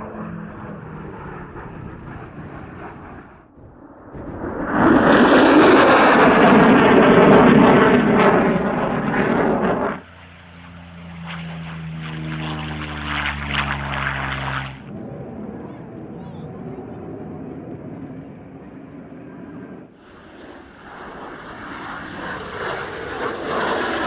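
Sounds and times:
jet crackling roar: 0.0 - 24.0
propeller plane engine drone: 0.0 - 24.0.

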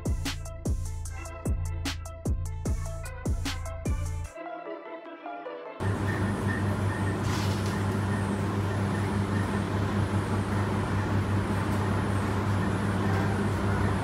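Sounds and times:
tumble dryers humming: 5.8 - 14.0.

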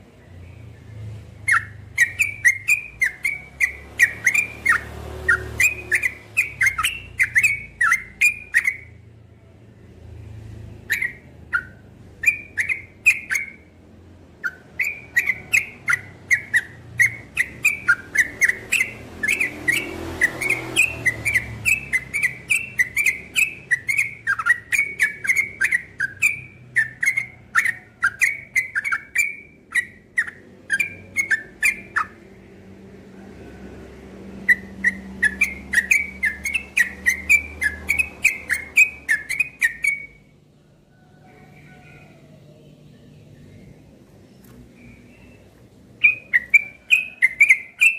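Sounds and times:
bird singing whistled notes: 1.4 - 9.0, 10.9 - 13.8, 14.4 - 32.2, 34.4 - 40.3, 44.4 - 47.9.

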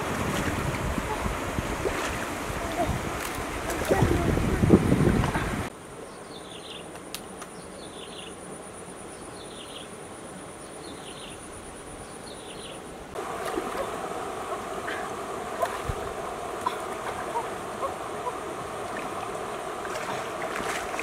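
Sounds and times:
wading through a stream: 0.0 - 5.7, 13.2 - 21.0.

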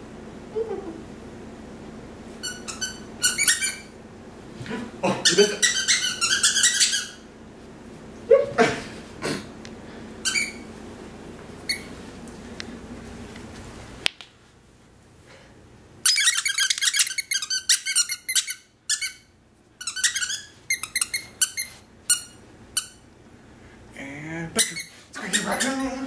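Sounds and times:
toy squeaker squeaking: 2.4 - 3.9, 5.6 - 7.2, 16.0 - 19.2, 19.8 - 23.0, 24.6 - 26.0.

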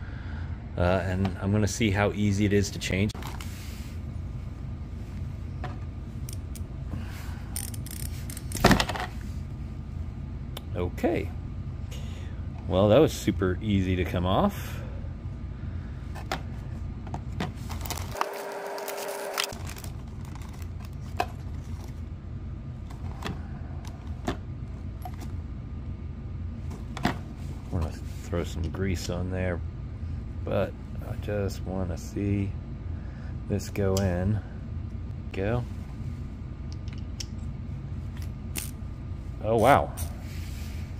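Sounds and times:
steady low hum: 0.0 - 40.9
plastic bag rustling: 17.6 - 21.8.

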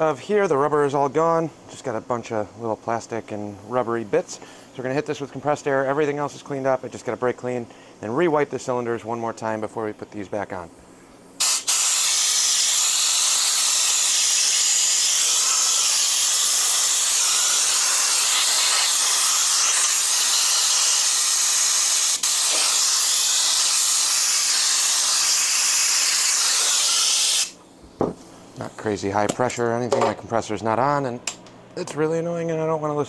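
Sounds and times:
air blow gun hissing: 11.4 - 27.6.

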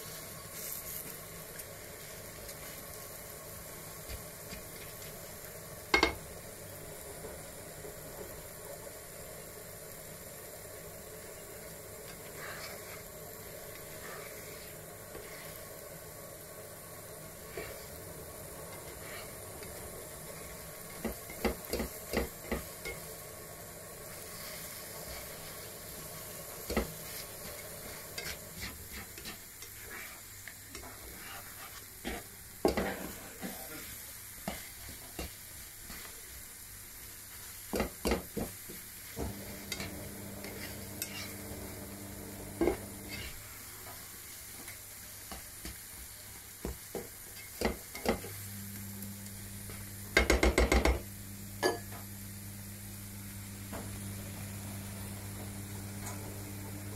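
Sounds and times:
food sizzling in a frying pan: 0.0 - 56.9
spatula scraping a pan: 12.1 - 15.8, 17.3 - 18.0, 18.7 - 23.1, 24.1 - 26.0, 26.6 - 33.8, 39.6 - 41.7, 42.7 - 43.4
spatula knocking against pan: 50.2 - 51.0.

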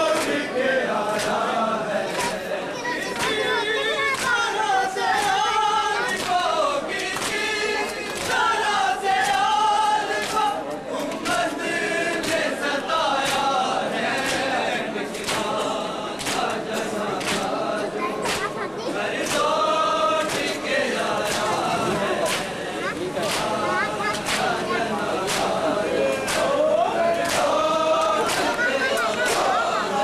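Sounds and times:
men chanting a lament: 0.0 - 30.0
rhythmic chest-beating: 0.0 - 30.0.

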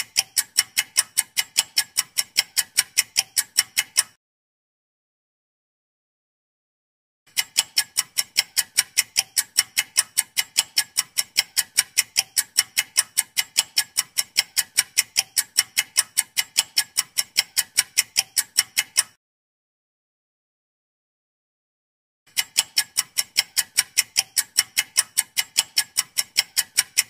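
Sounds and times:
clock ticking: 0.0 - 4.2, 7.3 - 19.2, 22.3 - 27.0.

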